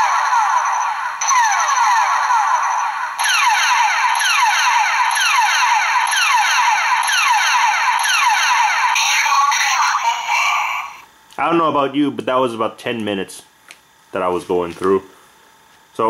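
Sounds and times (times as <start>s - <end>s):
toy electronic falling tones: 0.0s - 11.0s
steady high whine: 0.0s - 13.5s.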